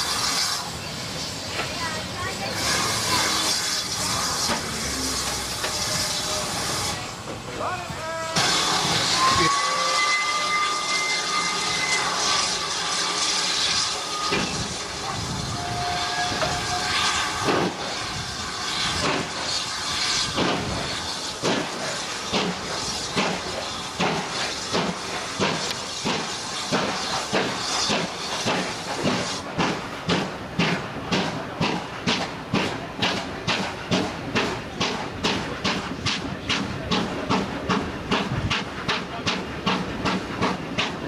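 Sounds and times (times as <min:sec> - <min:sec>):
steam hissing: 0:00.0 - 0:41.0
steam whistle: 0:08.4 - 0:18.7.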